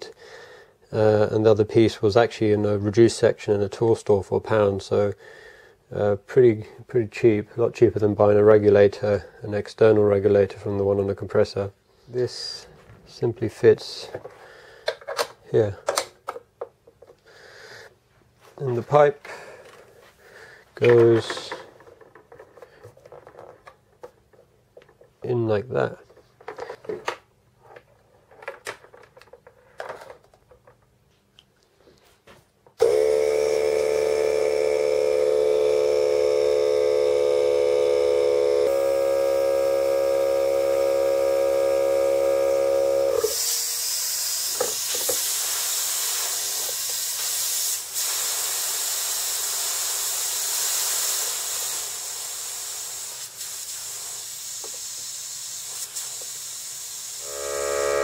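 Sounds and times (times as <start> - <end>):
air compressor motor humming: 32.8 - 58.0
compressed air hissing: 38.6 - 57.4.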